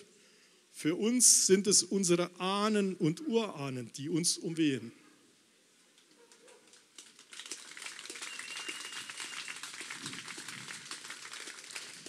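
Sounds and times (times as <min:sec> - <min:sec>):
audience applause: 0:06.9 - 0:12.0.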